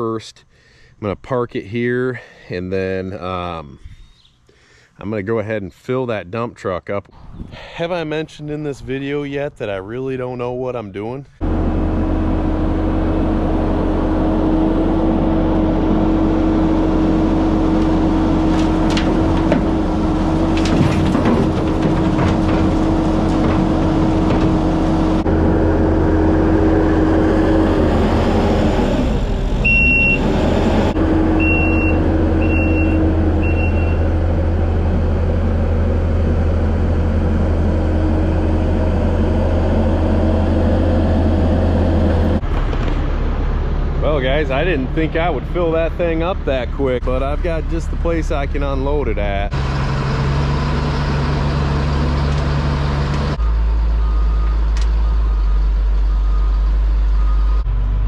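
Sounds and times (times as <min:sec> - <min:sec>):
diesel engine running: 0:11.2 - 0:58.0
rocks clattering into steel truck bed: 0:18.4 - 0:25.2
short high beeps: 0:31.4 - 0:34.0.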